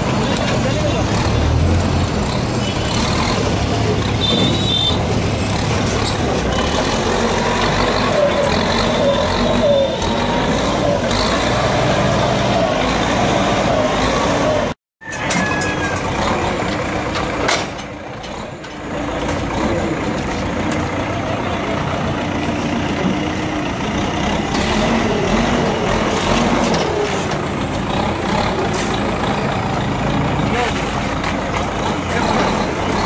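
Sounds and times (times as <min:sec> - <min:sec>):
voices: 0:00.0 - 0:04.6
street noise: 0:00.0 - 0:33.0
diesel engine running: 0:15.8 - 0:33.0.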